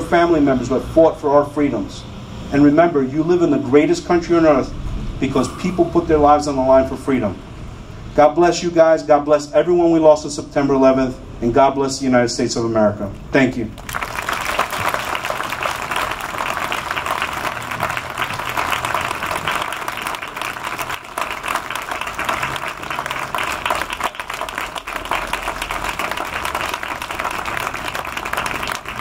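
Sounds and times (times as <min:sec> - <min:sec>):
crowd applauding: 0:13.8 - 0:29.0.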